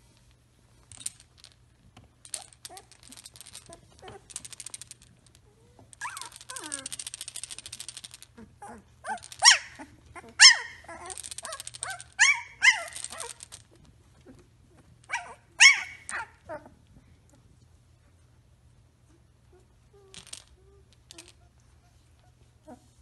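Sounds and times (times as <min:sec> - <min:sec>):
puppy yipping: 0:06.0 - 0:07.0, 0:08.6 - 0:13.4, 0:15.1 - 0:16.7.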